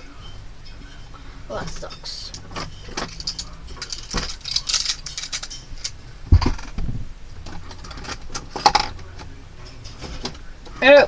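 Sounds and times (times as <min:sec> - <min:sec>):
small objects clattering: 0:01.6 - 0:06.8, 0:07.4 - 0:09.1.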